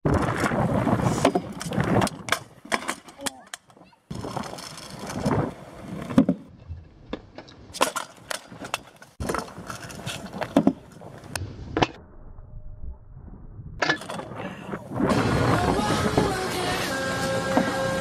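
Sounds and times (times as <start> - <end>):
scooter wheels rolling on asphalt: 0.1 - 11.4.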